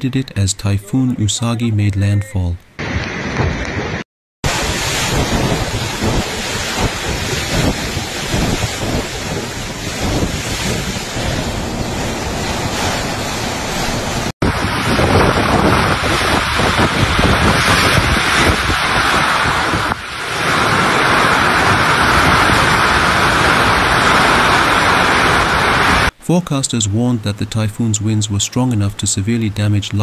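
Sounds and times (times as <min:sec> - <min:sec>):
strong wind gusting: 0:02.8 - 0:26.1
heavy rain: 0:02.8 - 0:26.2.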